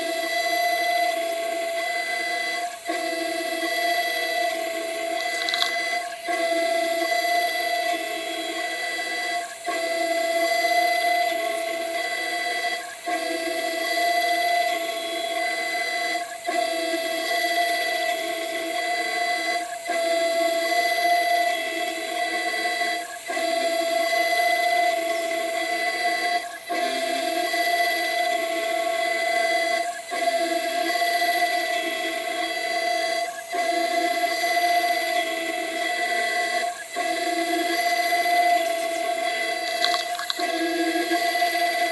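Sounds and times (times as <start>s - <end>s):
router spindle whining: 0.0s - 41.9s
vacuum nozzle sucking: 36.1s - 41.8s.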